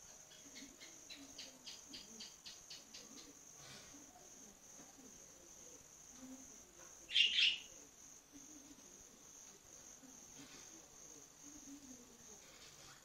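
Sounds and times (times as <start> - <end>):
budgerigar chirp: 7.1 - 7.7.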